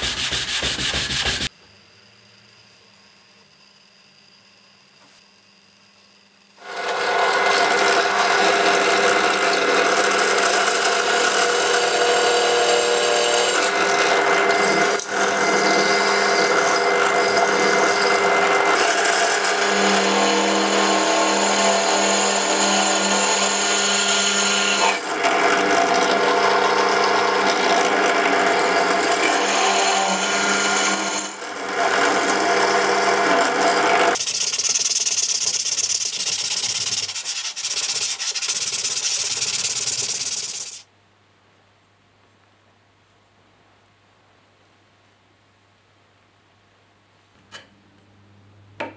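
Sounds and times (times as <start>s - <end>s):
sanding block rubbing on steel: 0.0s - 1.5s, 34.2s - 40.8s.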